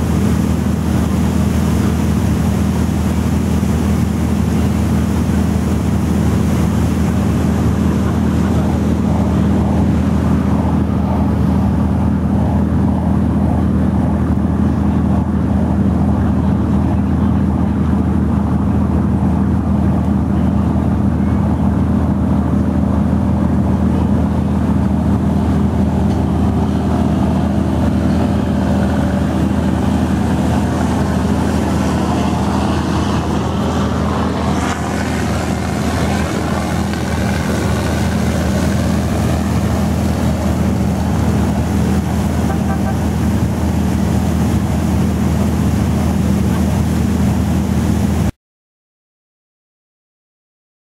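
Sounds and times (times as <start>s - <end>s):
boat engine droning: 0.0s - 48.3s
water rushing along hull: 0.0s - 48.4s.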